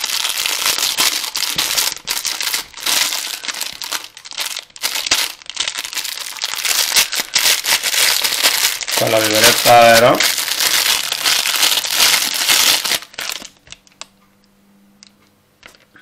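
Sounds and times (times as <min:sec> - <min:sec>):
packaging crinkling: 0:00.0 - 0:14.1.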